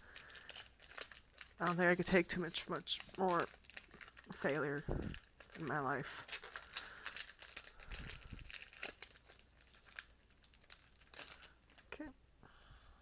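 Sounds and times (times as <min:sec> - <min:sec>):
foil pack crinkling and tearing: 0:00.0 - 0:12.1.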